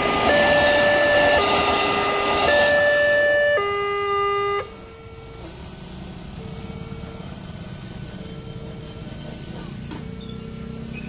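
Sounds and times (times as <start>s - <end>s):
level crossing two-tone alarm: 0.0s - 5.4s, 6.1s - 8.8s
traffic noise: 0.0s - 11.0s.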